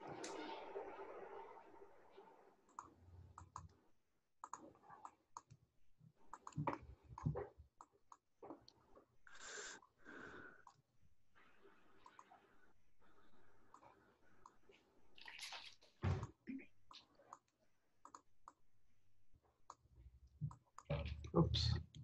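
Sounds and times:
mouse and keyboard clicks: 4.4s - 5.6s, 6.3s - 8.2s.

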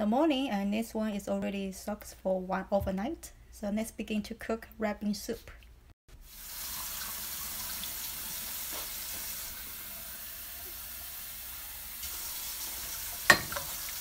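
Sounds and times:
water pouring into a pot: 6.2s - 14.0s.

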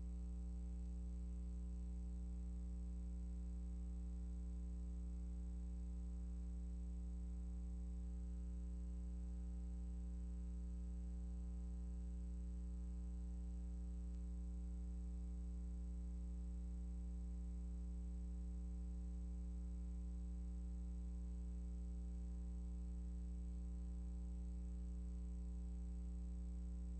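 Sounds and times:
low electrical hum: 0.0s - 26.9s.

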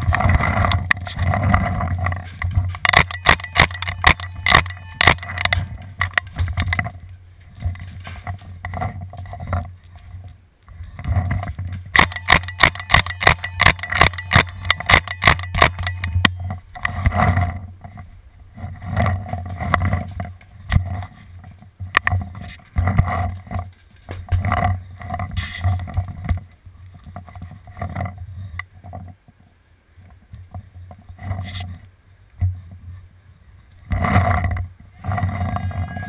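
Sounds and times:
paintball marker rapid shots: 2.9s - 5.3s, 12.0s - 16.2s.

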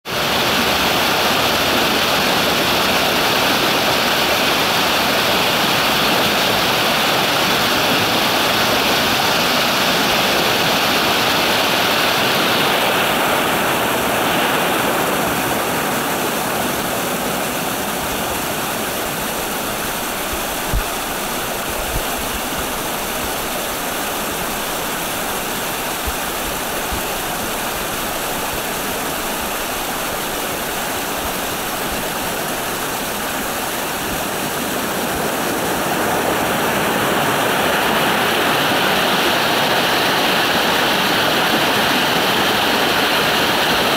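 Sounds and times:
stream rushing over rocks: 0.0s - 43.9s.

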